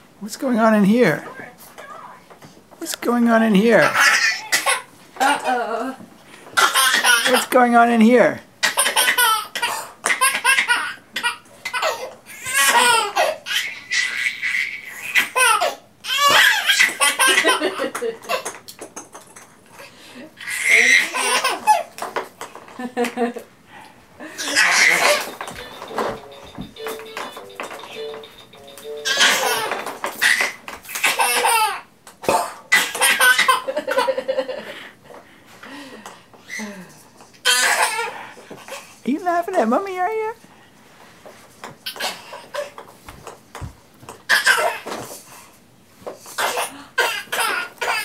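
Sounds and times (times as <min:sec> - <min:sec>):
toddler laughing: 0:06.6 - 0:07.5, 0:08.6 - 0:18.6, 0:20.4 - 0:21.9, 0:24.3 - 0:25.6, 0:29.0 - 0:31.9, 0:32.7 - 0:34.5.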